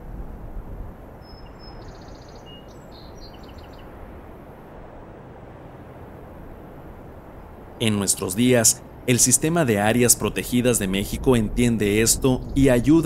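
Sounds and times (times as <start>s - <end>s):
outdoor ambient noise: 0.0s - 13.0s
faint high bird chirps: 1.2s - 3.9s.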